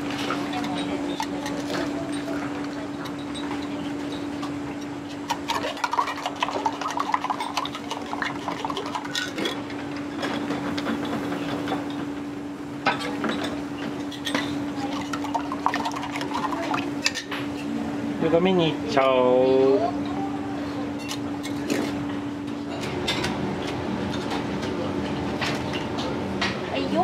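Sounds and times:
dishes and utensils clinking: 5.3s - 12.0s, 12.8s - 17.7s.

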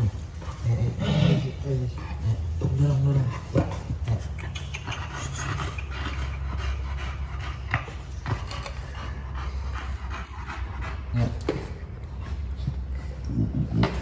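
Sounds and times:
dog panting: 0.0s - 14.0s.

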